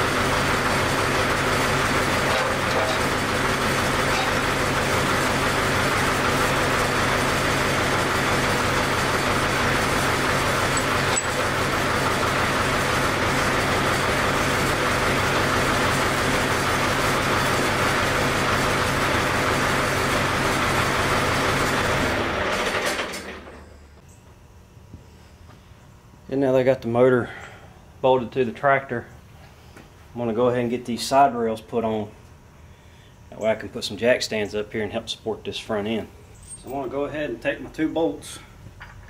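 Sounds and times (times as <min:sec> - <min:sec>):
motor running drone: 0:00.0 - 0:24.1.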